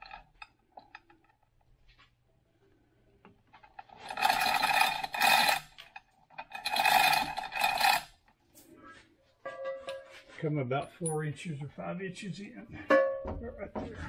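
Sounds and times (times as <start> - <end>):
chain hoist chain rattling: 0.0 - 1.4, 3.6 - 8.2.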